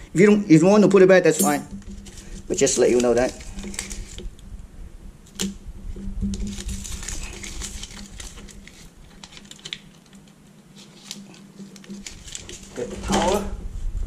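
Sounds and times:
foil tape crinkling and clicking: 1.7 - 4.5, 5.2 - 13.4.

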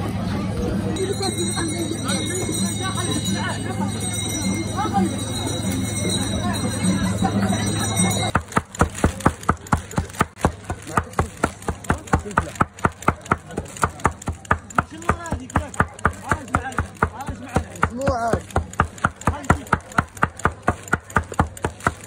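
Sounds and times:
knife chopping meat: 8.3 - 22.0.

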